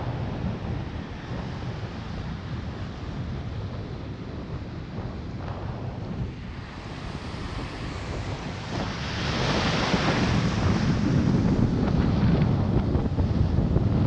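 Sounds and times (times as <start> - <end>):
wind buffeting microphone: 0.0 - 14.0
ocean surf breaking: 4.7 - 14.0.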